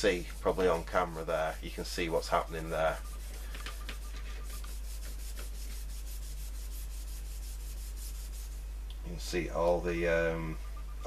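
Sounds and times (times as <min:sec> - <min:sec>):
steel wool scrubbing metal: 0:00.0 - 0:08.6.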